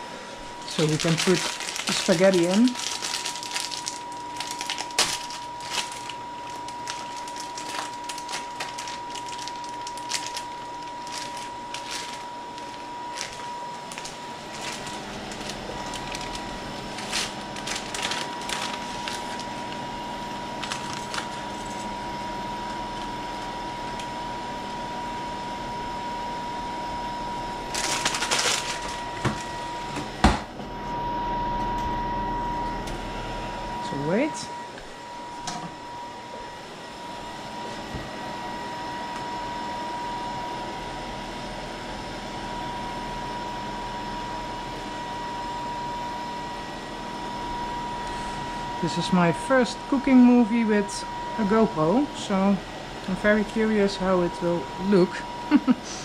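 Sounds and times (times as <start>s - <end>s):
low hum from pot on burner: 0.0s - 56.0s
dry spaghetti rustling into pot: 0.6s - 22.0s, 27.7s - 29.6s.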